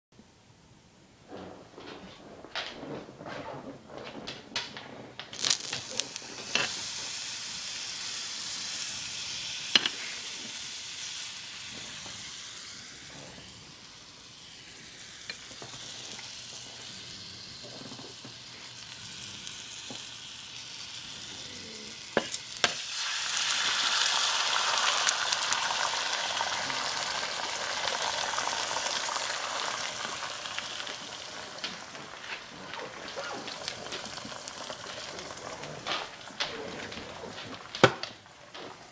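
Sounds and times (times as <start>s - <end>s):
egg cracking: 4.2s - 6.9s, 18.8s - 38.9s
egg frying: 4.5s - 38.9s
butter sizzling in a skillet: 5.3s - 38.9s.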